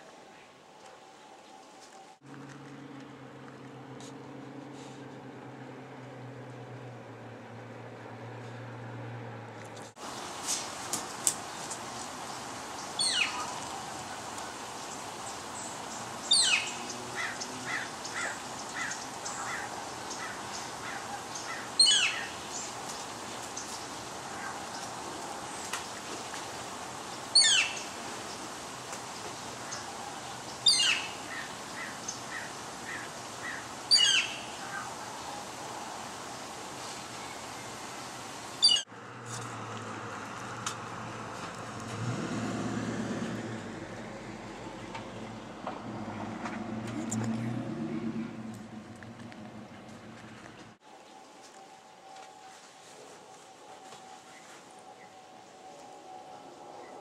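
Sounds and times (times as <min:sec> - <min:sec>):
bird squawking: 0:27.4 - 0:27.8, 0:30.6 - 0:34.9.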